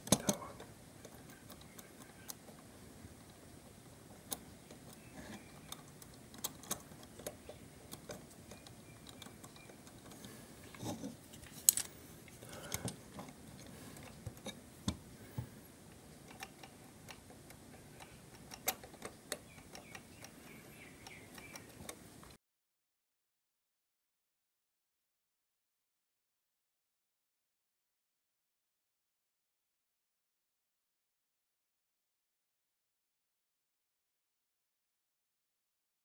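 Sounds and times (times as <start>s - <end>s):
small clicks of clock parts: 4.3s - 10.9s, 11.6s - 14.6s, 16.2s - 22.4s.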